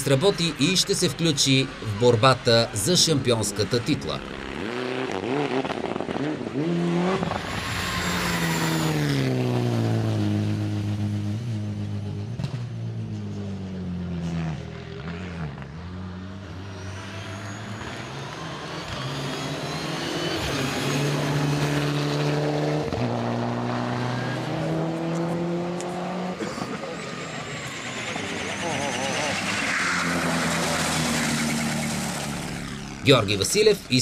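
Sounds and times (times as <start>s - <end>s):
rally car engines revving: 0.0s - 34.0s.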